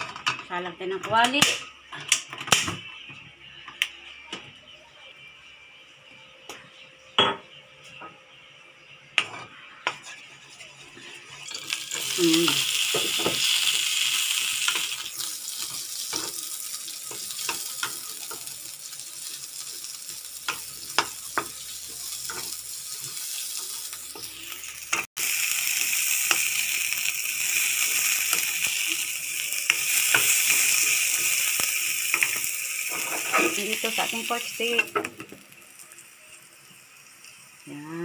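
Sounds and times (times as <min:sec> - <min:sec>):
food sizzling in hot oil: 0:09.2 - 0:38.0
wooden spatula scraping a pan: 0:32.9 - 0:33.8.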